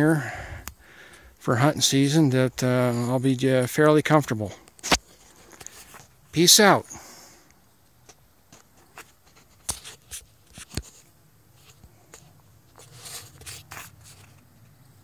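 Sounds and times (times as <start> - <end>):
light clicks and crunches: 4.6 - 6.2.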